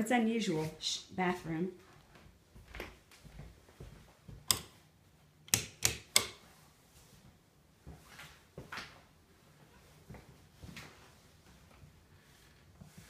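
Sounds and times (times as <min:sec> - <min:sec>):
sharp knocks and clicks: 0:05.5 - 0:06.4.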